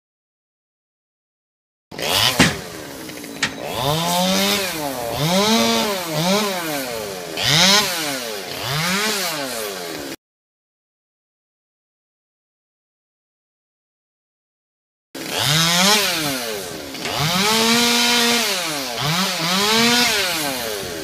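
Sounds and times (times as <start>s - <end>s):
chainsaw revving: 1.9s - 10.2s, 15.2s - 21.0s.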